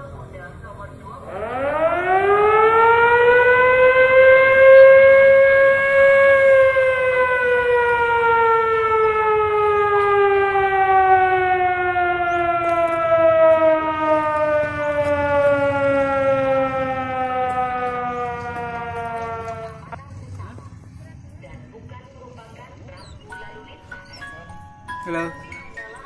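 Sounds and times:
siren winding down: 1.2 - 20.1.

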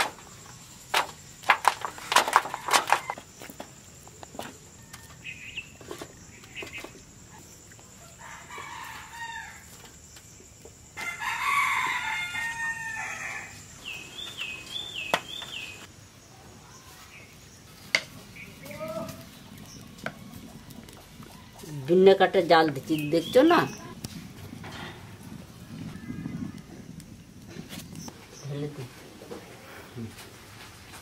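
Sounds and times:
rooster crowing: 8.0 - 9.7, 11.0 - 13.7.

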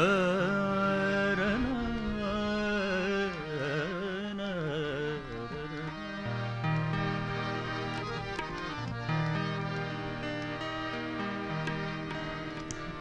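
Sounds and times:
man singing: 0.0 - 6.4
harmonium chords: 0.0 - 13.0.

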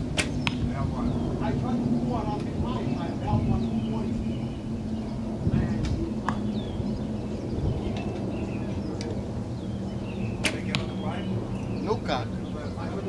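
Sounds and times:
birds chirping: 0.0 - 13.0
steady low hum: 0.0 - 13.0
arrow striking target: 10.4 - 11.0.

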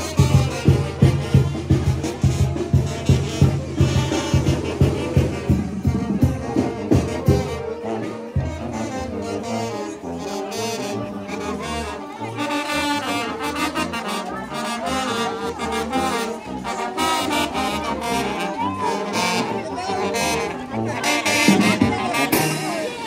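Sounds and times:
heavy drum beats: 0.0 - 8.9, 21.0 - 23.0
brass band playing dance tune: 0.0 - 23.0.

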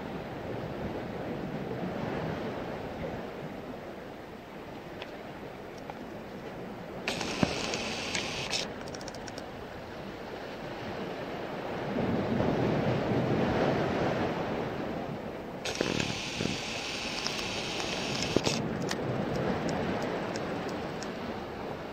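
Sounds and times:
small waves washing on shore: 0.1 - 21.9
wind on microphone: 10.3 - 21.9
higher hiss: 15.6 - 18.6.

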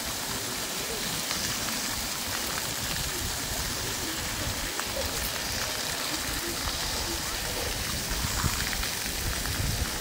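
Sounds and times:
fountain jets splashing on paving: 0.0 - 10.0.

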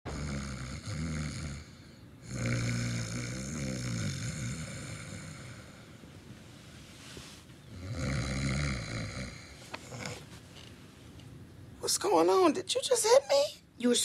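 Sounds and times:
woman snoring: 0.1 - 5.9, 7.7 - 10.2.

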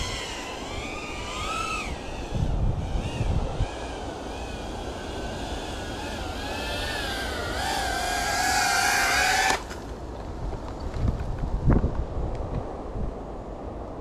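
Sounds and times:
drone propellers whining: 0.0 - 9.8.

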